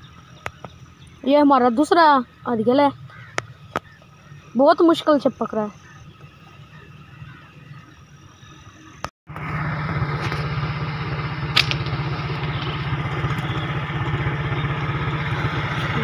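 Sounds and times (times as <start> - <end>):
small engine idling: 0.0 - 4.5, 9.3 - 16.0.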